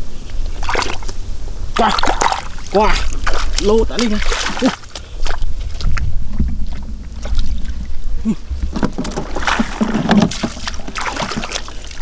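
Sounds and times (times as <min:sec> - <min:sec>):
shallow water splashing: 0:00.4 - 0:12.0
low rumble: 0:04.2 - 0:10.9.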